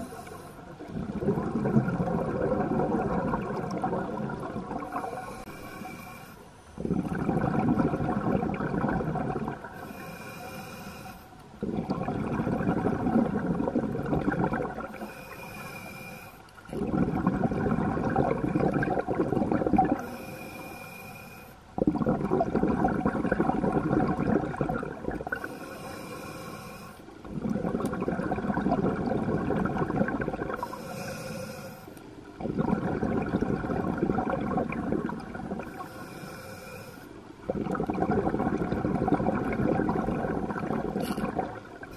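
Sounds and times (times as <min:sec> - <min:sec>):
regulator inhale hiss: 0:00.0 - 0:00.8, 0:04.9 - 0:06.8, 0:09.8 - 0:11.4, 0:14.9 - 0:16.6, 0:20.0 - 0:21.7, 0:25.3 - 0:27.1, 0:30.6 - 0:32.0, 0:35.7 - 0:37.2
exhale bubbling through regulator: 0:00.0 - 0:41.9.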